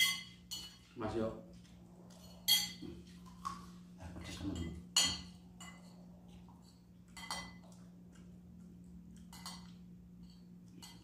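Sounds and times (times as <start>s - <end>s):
tableware clinking against dishes: 0.0s - 1.0s, 2.2s - 2.9s, 4.2s - 6.0s, 7.1s - 7.8s, 9.3s - 11.0s
steady low hum: 0.0s - 11.0s.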